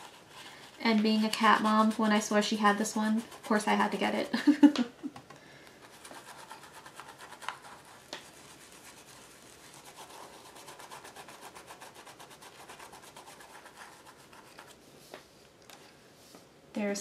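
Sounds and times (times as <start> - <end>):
applicator rubbing on paper: 0.0 - 4.3.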